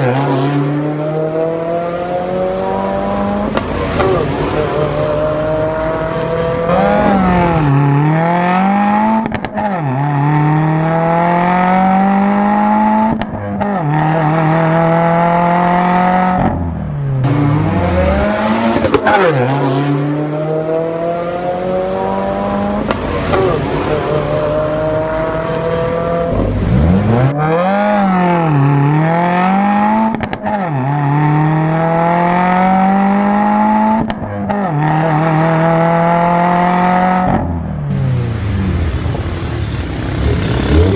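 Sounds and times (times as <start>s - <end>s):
car engine accelerating: 0.0s - 40.9s.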